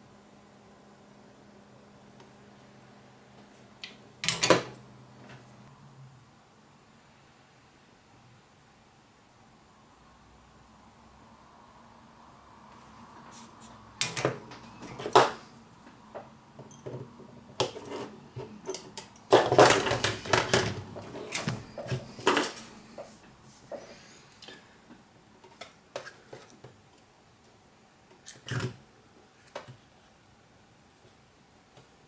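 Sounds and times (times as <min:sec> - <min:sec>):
tools clicking and knocking on plastic: 0:16.2 - 0:22.7.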